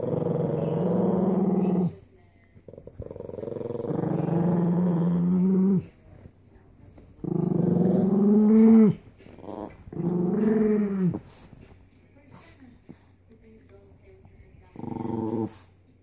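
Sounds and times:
small dog growling: 0.0s - 2.0s, 2.6s - 6.3s, 7.0s - 11.6s, 14.7s - 15.8s.

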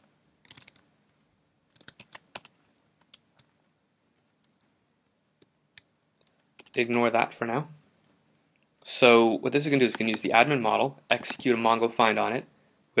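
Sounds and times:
computer keyboard keystrokes: 0.4s - 0.8s, 1.7s - 3.5s, 5.8s - 7.0s, 9.9s - 10.2s, 11.2s - 11.5s.

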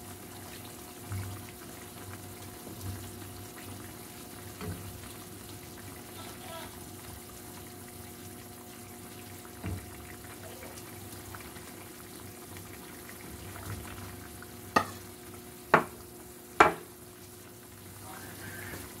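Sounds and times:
broth simmering and bubbling: 0.0s - 19.0s
spoon knocking against pan: 14.7s - 15.1s, 15.7s - 16.0s, 16.6s - 16.9s.

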